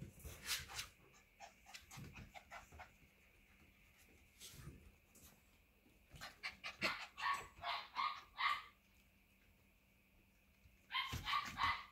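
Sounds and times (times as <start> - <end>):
puppy yapping: 6.3 - 8.8, 10.9 - 11.9.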